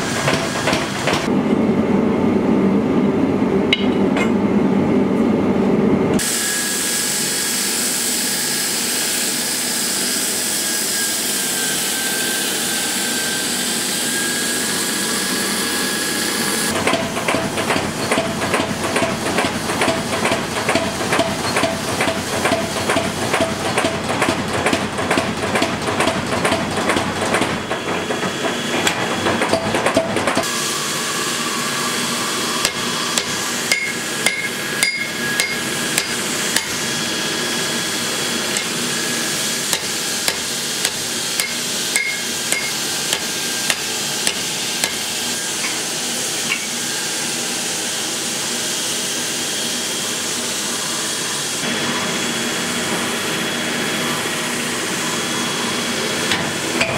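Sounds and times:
power hammer pounding hot steel: 0:00.0 - 0:01.3, 0:16.7 - 0:30.8, 0:31.5 - 0:47.8, 0:55.6 - 0:56.9
hand hammer ringing on anvil: 0:33.7 - 0:36.7, 0:41.4 - 0:42.8.

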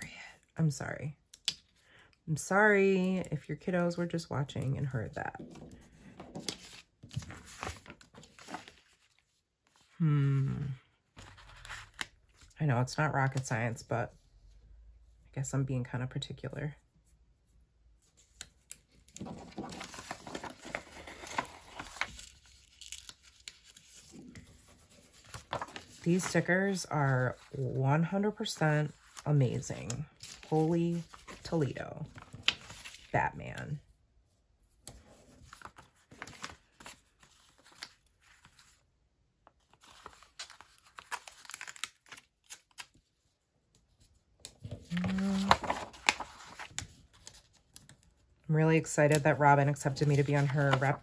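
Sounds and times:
paper rustling and crinkling: 0:05.4 - 0:10.0, 0:11.1 - 0:12.6, 0:18.2 - 0:27.8, 0:28.8 - 0:33.2, 0:34.9 - 0:38.8, 0:39.4 - 0:43.1, 0:44.0 - 0:48.3, 0:49.1 - 0:51.0.

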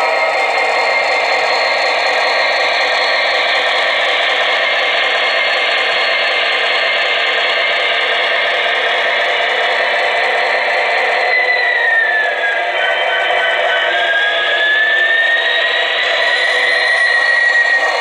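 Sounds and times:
diesel engine sound from small speaker: 0:00.0 - 0:18.0.

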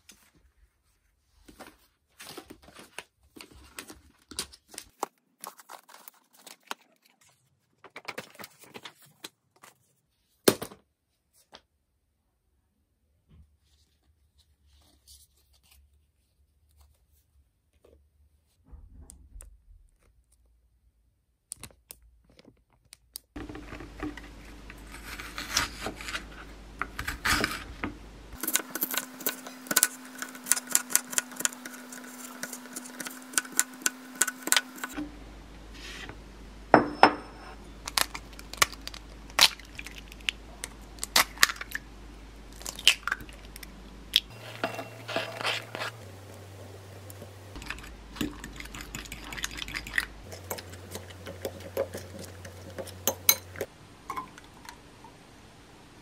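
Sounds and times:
plastic wrapper crinkling: 0:02.2 - 0:09.8, 0:37.8 - 0:46.8
utensils and dishes clinking: 0:36.8 - 0:37.6, 0:44.3 - 0:54.7.

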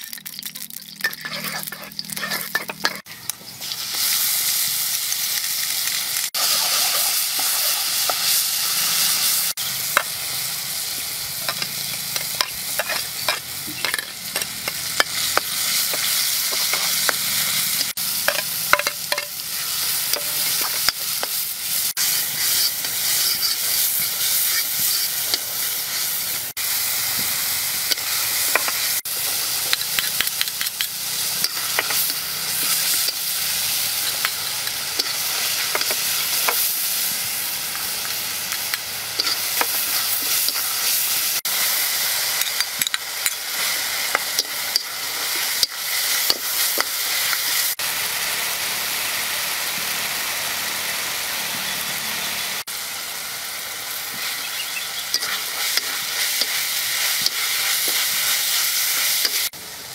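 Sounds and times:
oil sizzling in a wok: 0:00.0 - 0:59.9
metal spatula scraping wok: 0:00.9 - 0:03.2, 0:11.2 - 0:26.4, 0:27.9 - 0:47.7, 0:55.1 - 0:59.5.

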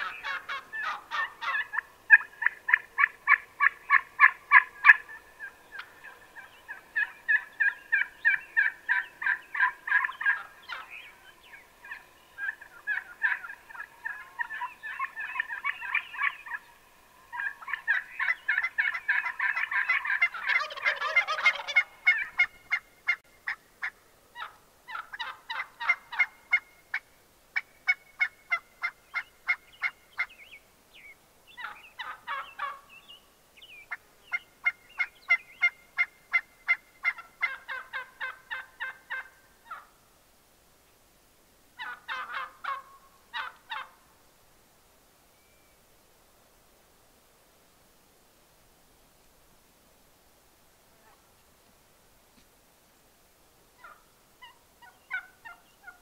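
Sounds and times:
turkey gobble: 0:00.0 - 0:30.3, 0:31.6 - 0:32.9, 0:33.9 - 0:40.0, 0:41.8 - 0:44.0, 0:53.8 - 0:56.0
turkeys yelping and clucking: 0:00.0 - 0:33.0, 0:33.8 - 0:40.0, 0:41.8 - 0:44.0, 0:53.8 - 0:56.0.

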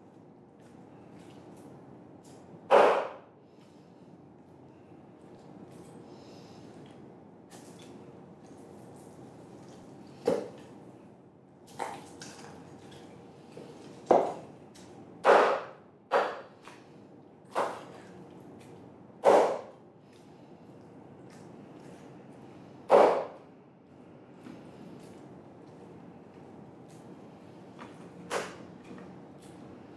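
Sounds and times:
knife chopping on wooden board: 0:02.7 - 0:03.2, 0:15.2 - 0:16.5, 0:19.2 - 0:19.7, 0:22.9 - 0:23.4.

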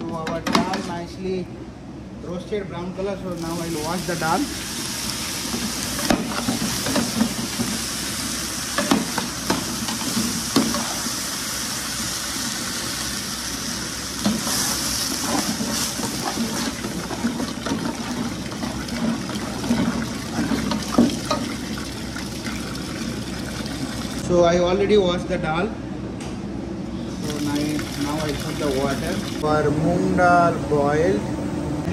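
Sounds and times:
water pouring into metal pot: 0:27.2 - 0:29.4.

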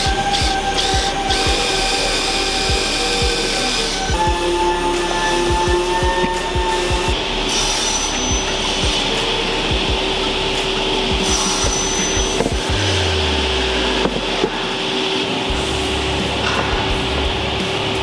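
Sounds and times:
light background music: 0:00.0 - 0:18.0
workshop machinery whirring: 0:00.0 - 0:18.0.

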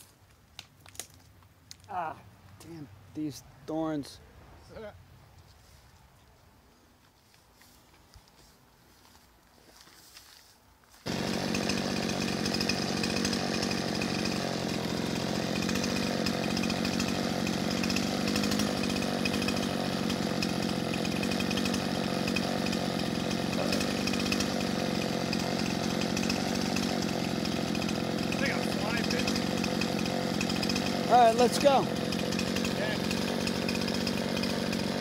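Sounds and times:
chainsaw idling: 0:11.0 - 0:35.0.

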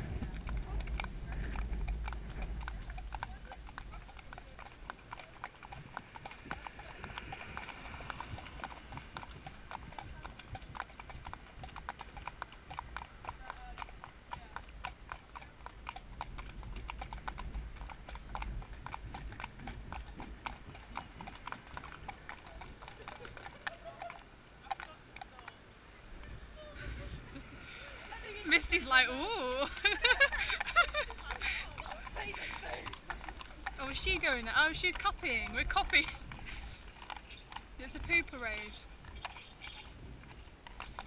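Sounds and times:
low rumble: 0:00.0 - 0:22.3
hooves clip-clopping on tarmac: 0:00.0 - 0:41.0.

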